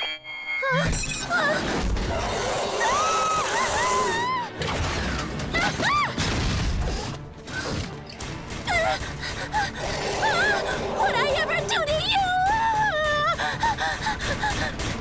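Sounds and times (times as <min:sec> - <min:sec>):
background music: 0:00.0 - 0:15.0
girl crying out in fright: 0:05.6 - 0:06.2.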